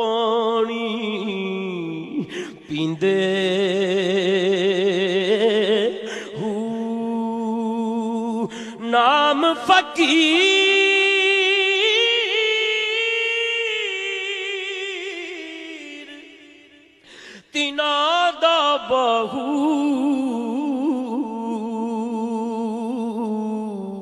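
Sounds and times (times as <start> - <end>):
man singing unaccompanied: 0.0 - 16.4, 17.4 - 24.0.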